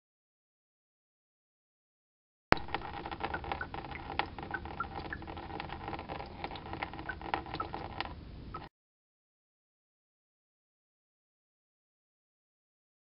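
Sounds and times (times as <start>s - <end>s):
small drips plinking: 2.6s - 8.7s.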